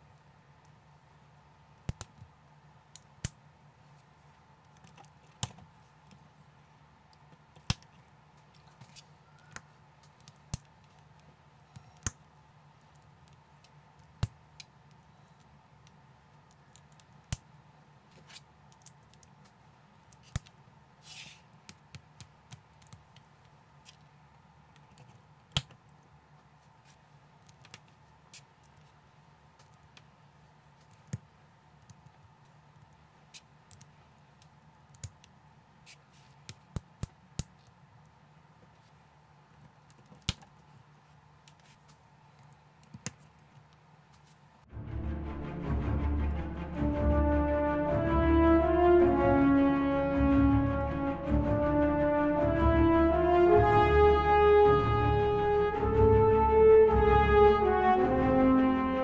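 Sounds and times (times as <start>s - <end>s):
faint hum: 0.0s - 36.3s.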